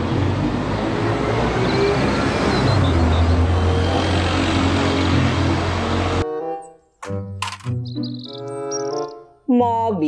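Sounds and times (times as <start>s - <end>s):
bus engine drone: 0.0s - 6.3s
street traffic noise: 0.0s - 9.4s.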